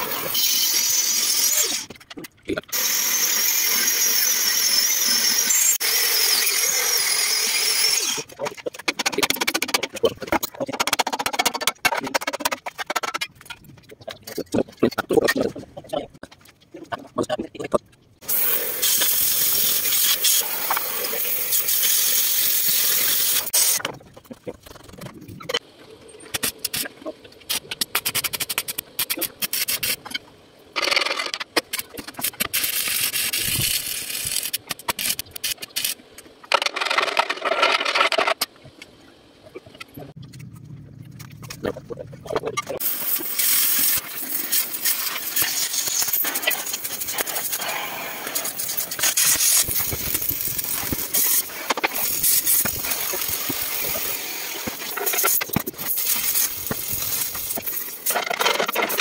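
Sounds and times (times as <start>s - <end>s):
arc welding crackling: 18.2s - 23.8s, 32.0s - 36.0s, 42.8s - 59.0s
cutting torch hissing: 18.2s - 23.8s, 42.8s - 58.1s.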